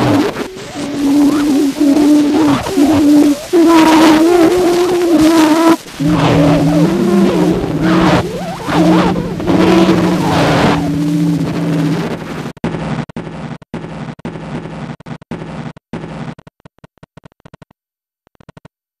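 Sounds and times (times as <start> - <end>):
hiss: 0.0 - 11.4
low two-note drone: 0.0 - 12.4.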